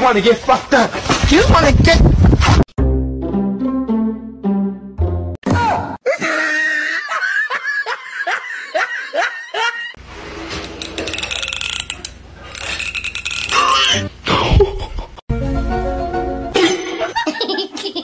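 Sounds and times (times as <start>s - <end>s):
person laughing: 6.0s - 10.0s, 14.3s - 15.2s, 16.6s - 18.0s.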